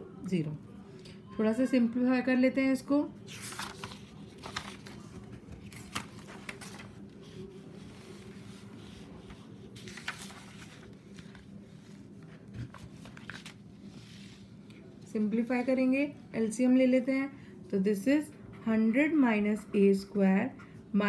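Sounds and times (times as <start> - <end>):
steady low hum: 2.9 - 21.0
paper sheets rustling: 3.3 - 14.9.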